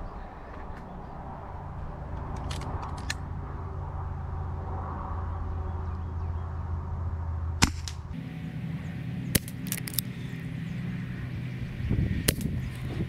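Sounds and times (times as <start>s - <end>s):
air pistol shots cracking: 7.6s - 8.1s, 9.3s - 10.0s, 12.2s - 12.7s.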